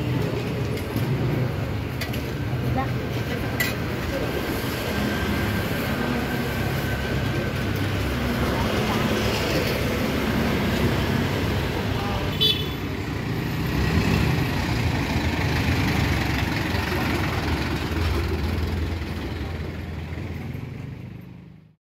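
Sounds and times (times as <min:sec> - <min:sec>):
vehicle engines rumbling: 0:00.0 - 0:21.8
people talking: 0:02.7 - 0:12.6, 0:16.4 - 0:17.6.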